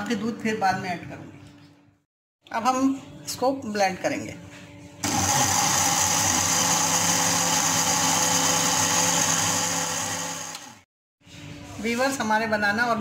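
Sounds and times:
electric blender running: 5.0s - 10.9s.

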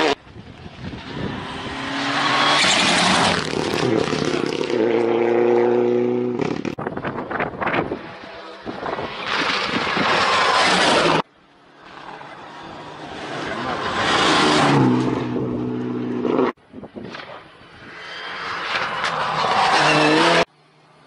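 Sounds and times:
rally car engine at high revs: 1.0s - 6.8s, 13.1s - 16.6s, 18.5s - 20.5s.

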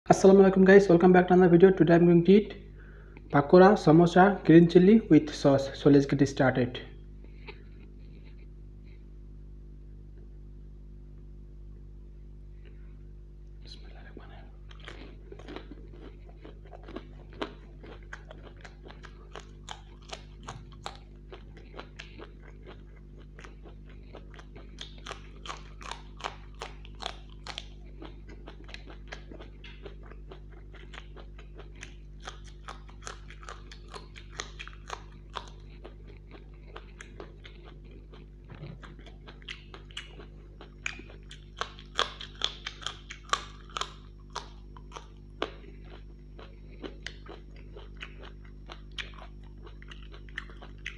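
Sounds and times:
steady low hum: 0.1s - 50.9s
crunchy bites and wet chewing: 13.5s - 50.9s.

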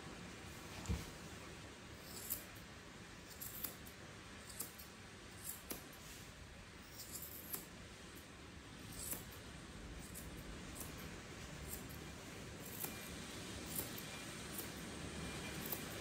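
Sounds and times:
scissors snipping fur: 2.0s - 2.6s, 3.2s - 6.1s, 6.8s - 9.4s, 10.0s - 16.0s.

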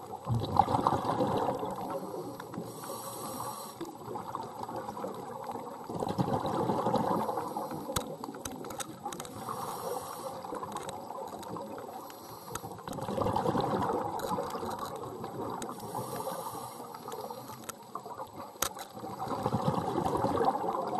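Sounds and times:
exhaled bubbles rumbling underwater: 0.0s - 20.9s
regulator inhalation hiss: 2.0s - 3.9s, 9.3s - 10.7s, 12.0s - 12.8s, 15.8s - 17.6s
sharp clicks: 7.9s - 9.4s, 18.6s - 18.9s.

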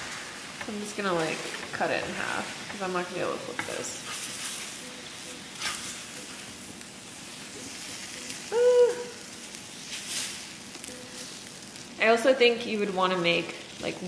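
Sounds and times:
wooden spatula scraping griddle: 0.0s - 8.5s, 9.4s - 11.6s
batter sizzling on griddle: 0.0s - 14.0s.

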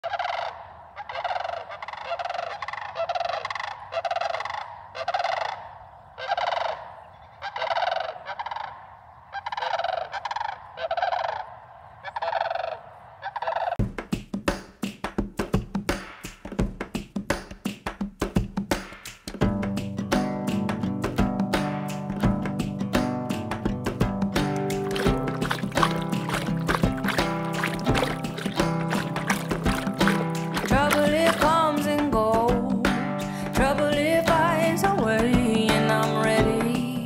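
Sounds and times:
cranes calling: 0.0s - 13.8s, 24.5s - 32.0s
music with guitar and percussion: 13.8s - 37.0s.

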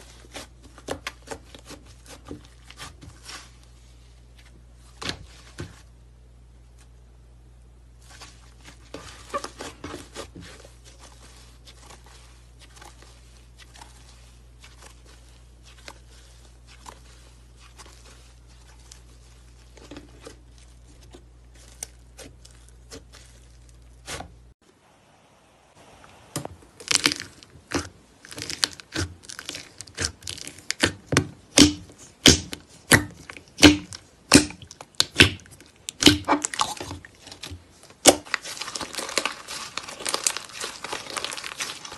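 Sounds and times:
slime crackling: 7.9s - 24.6s, 26.7s - 41.9s
slime popping: 26.8s - 41.9s.

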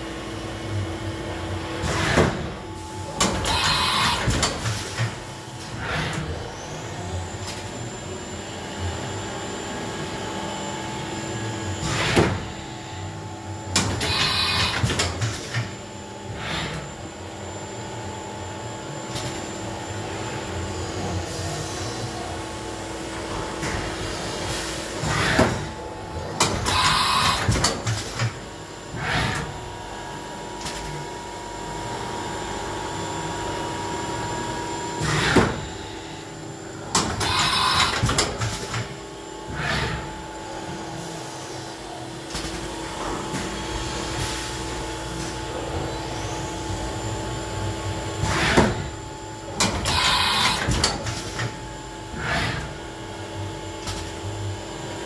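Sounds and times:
steady machine hum: 0.0s - 55.0s.

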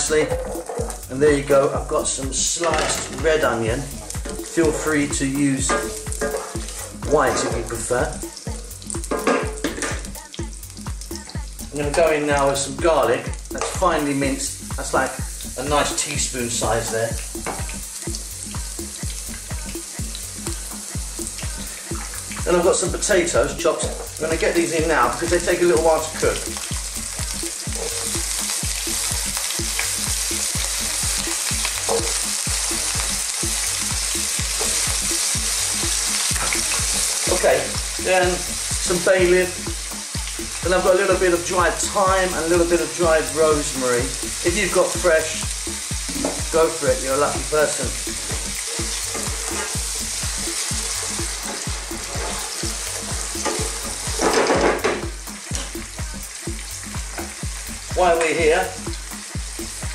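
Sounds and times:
food sizzling in frying pan: 0.0s - 59.9s
wooden spatula stirring: 47.7s - 54.2s.

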